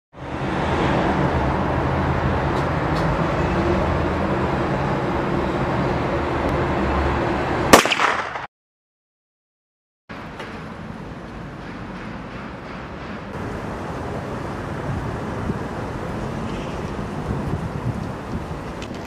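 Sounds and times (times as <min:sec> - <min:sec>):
road traffic rumble: 0:00.2 - 0:08.2, 0:10.1 - 0:19.0
loud bang: 0:07.7 - 0:08.5.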